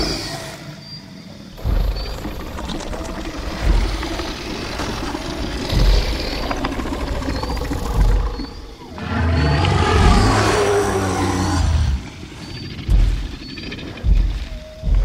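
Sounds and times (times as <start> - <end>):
deep low booms: 1.6 - 15.0
dinosaur growling roar: 2.0 - 12.3.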